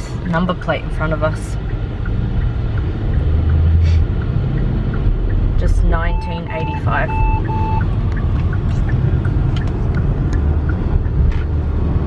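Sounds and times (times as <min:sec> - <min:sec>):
car road and engine rumble: 0:00.0 - 0:12.0
short beeps: 0:05.9 - 0:07.9.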